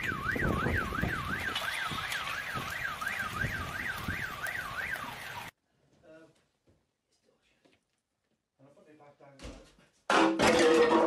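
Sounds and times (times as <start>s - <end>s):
wind buffeting microphone: 0.0s - 5.2s
car alarm siren wailing: 0.0s - 5.5s
heavy rain falling: 0.0s - 5.5s.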